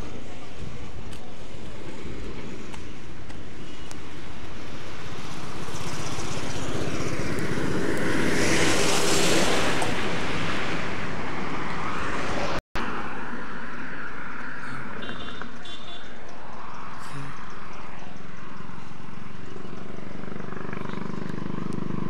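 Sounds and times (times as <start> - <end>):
outdoor background noise: 0.0 - 22.0
vehicle passing by: 4.6 - 22.0.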